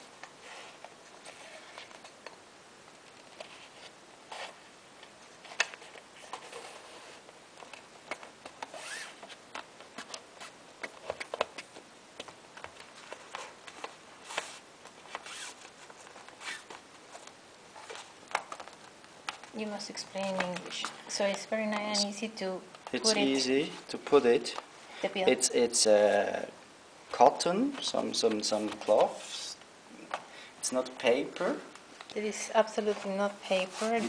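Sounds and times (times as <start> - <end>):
fabric rustling: 3.1 - 22.2, 32.3 - 34.0.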